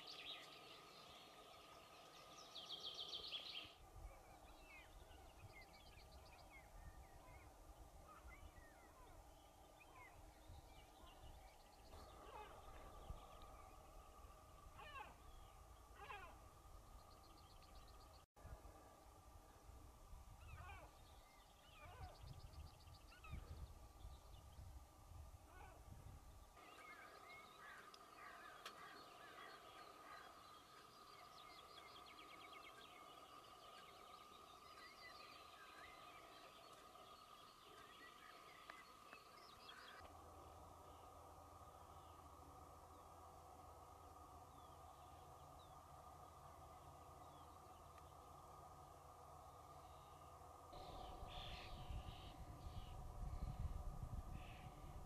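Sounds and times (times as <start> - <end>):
small birds chirping: 0.0 - 18.3, 26.4 - 55.0
faint steady hum: 0.0 - 55.0
faint steady tone: 0.0 - 55.0
short wavering animal calls: 14.7 - 16.4.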